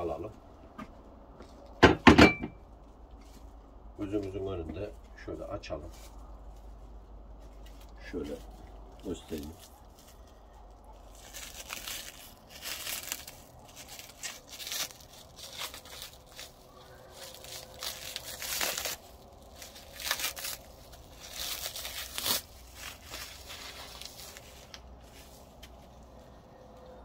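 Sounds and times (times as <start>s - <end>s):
plastic film crinkling and tearing: 5.2s - 27.0s.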